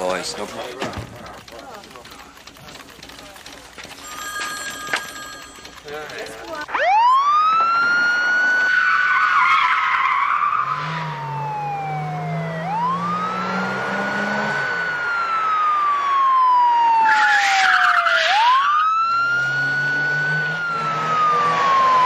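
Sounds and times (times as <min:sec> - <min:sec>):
police siren wailing: 0:06.7 - 0:22.0
car engine revving: 0:10.4 - 0:16.0, 0:19.0 - 0:22.0.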